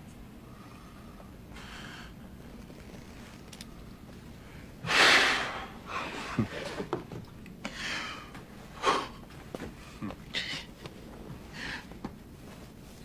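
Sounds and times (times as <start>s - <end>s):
man gasping and sobbing: 9.8s - 10.8s.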